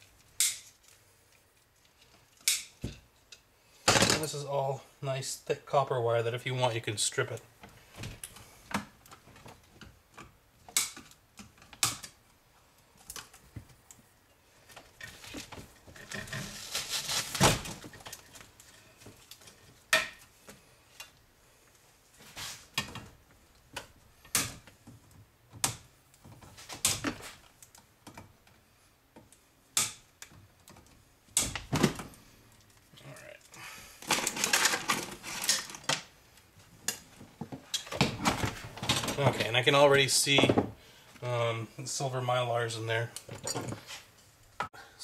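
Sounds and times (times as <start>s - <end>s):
wires and plastic rustling: 0.0s - 5.3s, 6.0s - 29.4s, 30.1s - 41.4s
wire cutters snipping: 2.4s - 2.7s.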